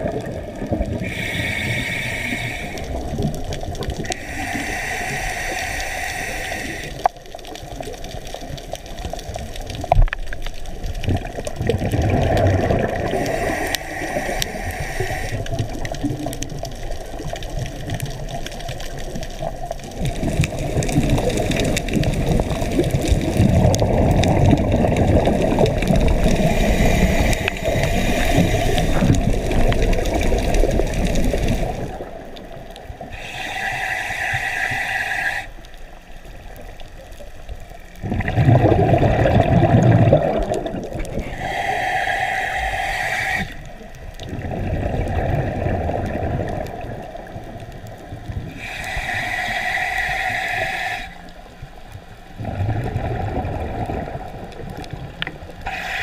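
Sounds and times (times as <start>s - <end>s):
bubbling exhalations: 0.0s - 32.4s, 38.0s - 43.6s, 44.2s - 47.5s, 52.4s - 56.0s
hissing regulator inhalations: 1.0s - 3.2s, 4.0s - 7.1s, 13.1s - 15.9s, 25.4s - 32.1s, 33.0s - 36.0s, 41.1s - 43.9s, 48.5s - 51.6s, 55.6s - 56.0s.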